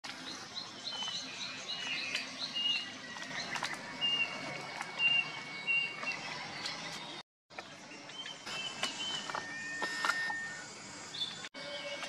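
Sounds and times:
whistled bird notes: 0.3 - 7.1, 7.9 - 12.0
bird chirps: 7.9 - 11.5.

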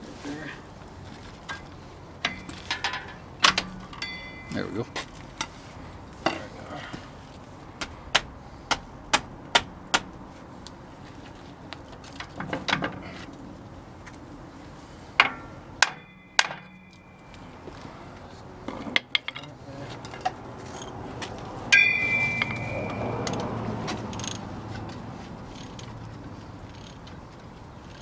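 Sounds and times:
metallic clanks of hand tools: 2.2 - 5.5, 15.2 - 17.4, 18.7 - 20.9, 21.7 - 24.4.

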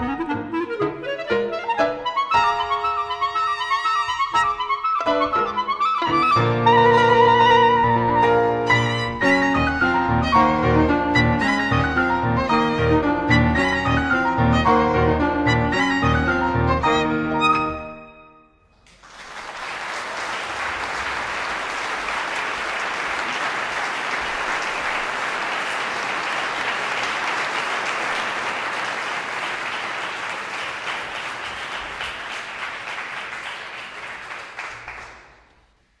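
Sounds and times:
audience applauding: 18.7 - 35.7.

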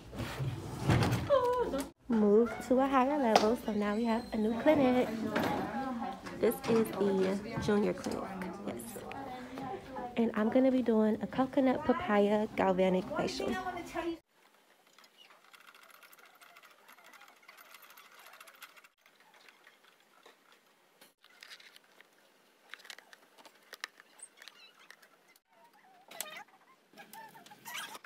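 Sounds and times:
rapid light clicking and rattling: 14.8 - 20.1.

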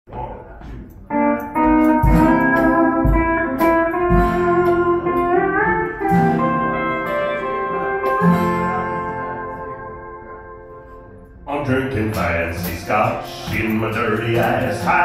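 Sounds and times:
guitar note bending: 0.1 - 15.0
live band playing: 1.1 - 11.2.

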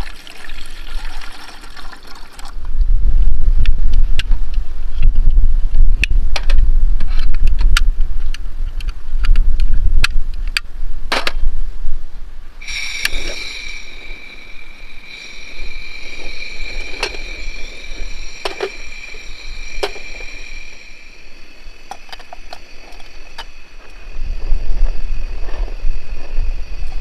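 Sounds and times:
gas hissing from burner: 12.6 - 27.0.

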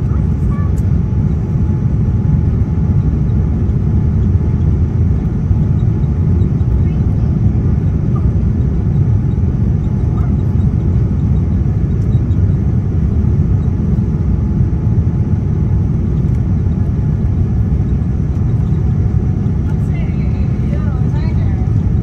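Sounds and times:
airliner cabin rumble: 0.0 - 22.0.

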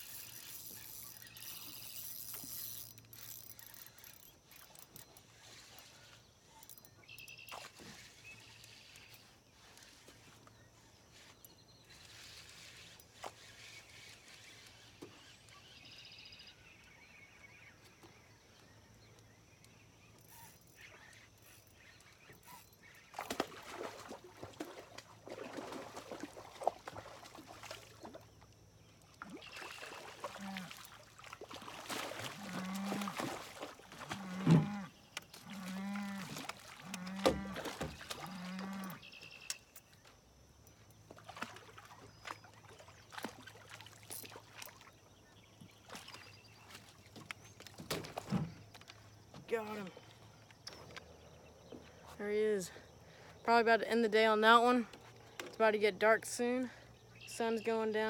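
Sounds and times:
rustling and splashing: 0.0 - 6.7, 23.0 - 40.1, 40.9 - 50.6.

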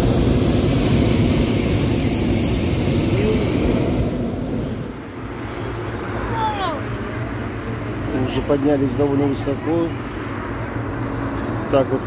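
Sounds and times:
propane burner blast: 0.0 - 6.0.

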